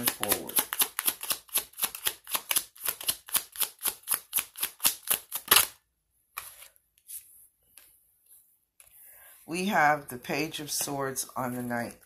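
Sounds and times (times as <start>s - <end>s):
cards being shuffled: 0.0s - 7.9s
soft card rustles: 6.3s - 9.1s.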